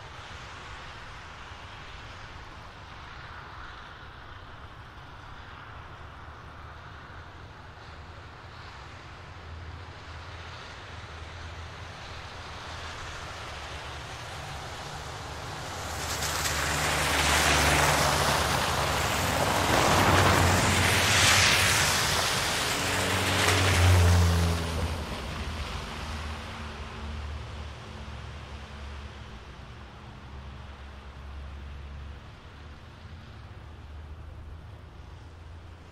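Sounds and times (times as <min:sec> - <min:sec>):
tyres splashing through slush: 0:12.0 - 0:27.7.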